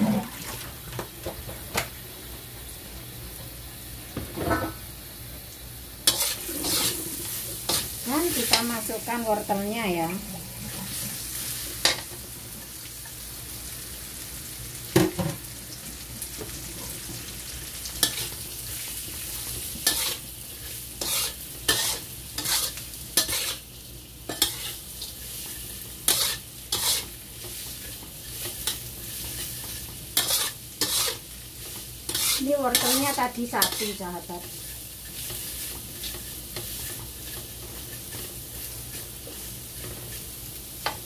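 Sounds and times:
vegetables sizzling in oil: 0:00.0 - 0:41.0
spatula scraping a wok: 0:06.0 - 0:13.2, 0:18.0 - 0:41.0.

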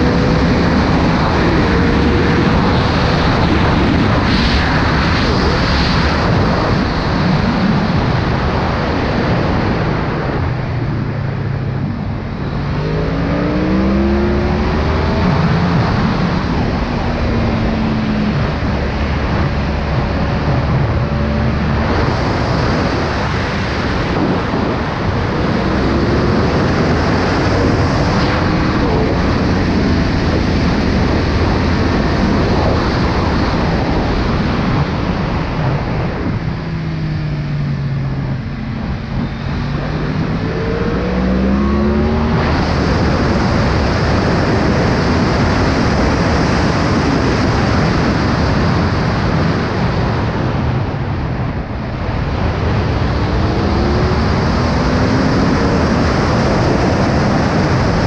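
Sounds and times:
motorcycle engine revving: 0:00.0 - 0:03.9, 0:10.8 - 0:31.9, 0:36.2 - 0:44.6
wind buffeting microphone: 0:00.0 - 0:58.0.

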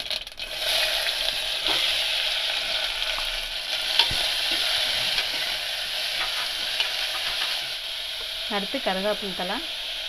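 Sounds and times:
onions sizzling in oil: 0:00.0 - 0:10.0
metal ladle stirring: 0:03.8 - 0:07.6.

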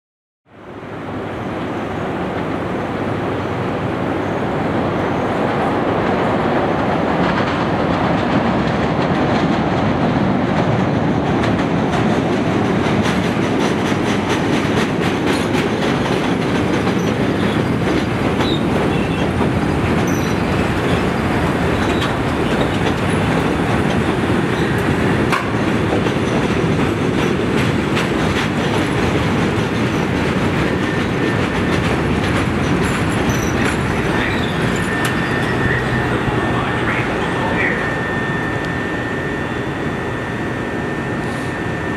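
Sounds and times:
train wheels rumbling on track: 0:00.5 - 0:41.9
high wheel squeal: 0:16.9 - 0:19.4, 0:20.0 - 0:23.3, 0:32.6 - 0:41.9.

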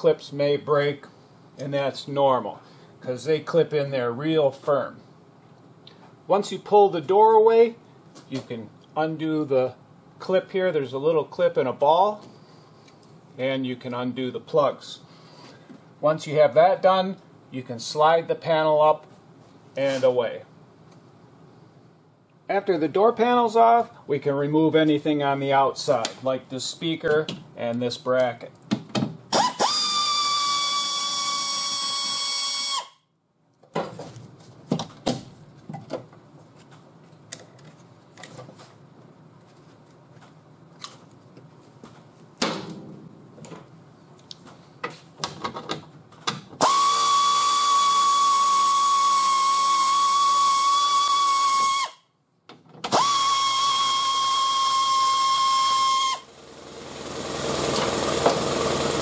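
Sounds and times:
air ratchet whining: 0:29.3 - 0:33.0, 0:46.6 - 0:52.0, 0:52.9 - 0:59.0.

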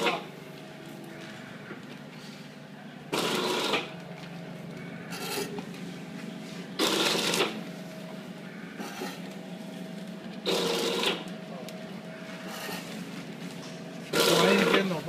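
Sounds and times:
machine noisy bursts: 0:00.0 - 0:00.4, 0:03.1 - 0:04.0, 0:06.5 - 0:09.4, 0:10.4 - 0:11.6, 0:14.0 - 0:15.0
packing machine humming: 0:00.0 - 0:15.0.

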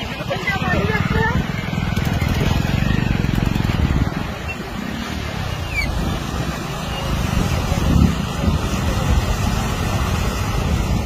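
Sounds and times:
floodwater rushing: 0:00.0 - 0:11.0
wind buffeting microphone: 0:00.0 - 0:11.0.

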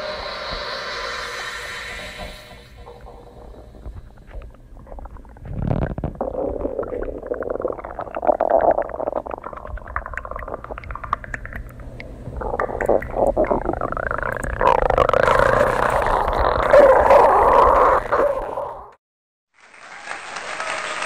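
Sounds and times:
stomach growling: 0:02.2 - 0:19.0.

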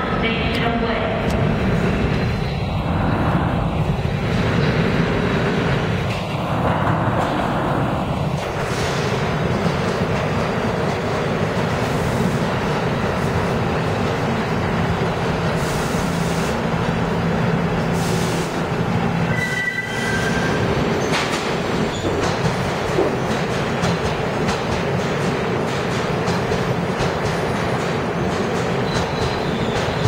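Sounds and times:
train wheels rushing on rail: 0:00.0 - 0:30.0
high wheel squeal: 0:19.3 - 0:20.6.

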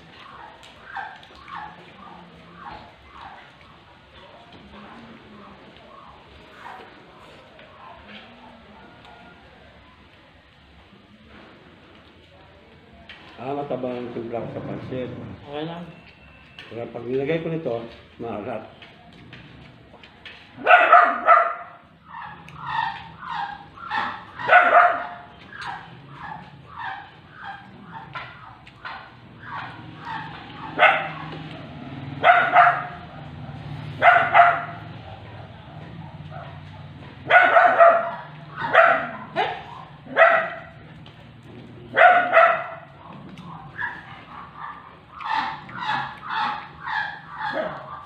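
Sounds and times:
dog barking: 0:20.6 - 0:40.9, 0:41.9 - 0:48.0.

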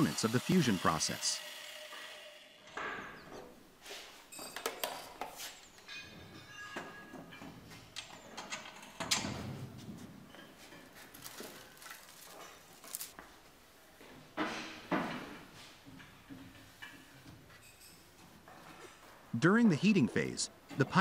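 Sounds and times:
metal tool parts clattering: 0:10.7 - 0:13.1.

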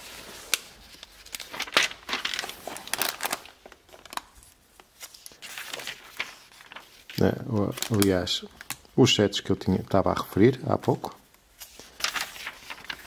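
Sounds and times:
paper pages rustling and flicking: 0:00.0 - 0:09.0, 0:11.5 - 0:13.0.

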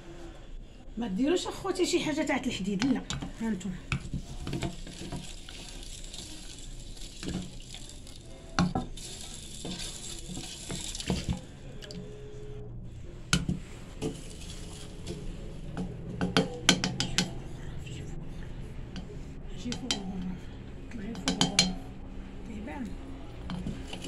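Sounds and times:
liquid swirling in a pot: 0:01.4 - 0:22.4, 0:23.1 - 0:24.0
spoon knocking against a pot: 0:15.8 - 0:17.4, 0:21.2 - 0:21.8.

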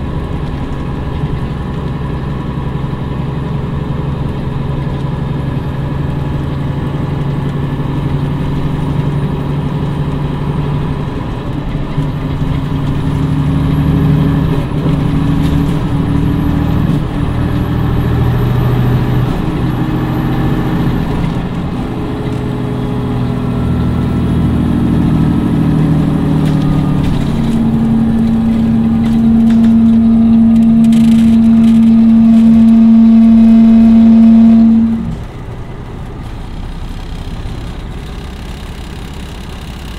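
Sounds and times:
diesel coach engine under load: 0:00.0 - 0:39.9.

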